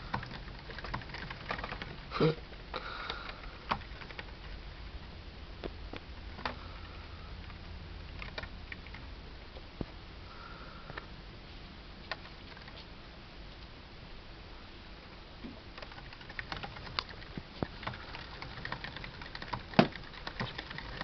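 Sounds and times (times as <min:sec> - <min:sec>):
hamster feet clicking and tapping: 0:00.0 - 0:02.1, 0:15.8 - 0:21.0.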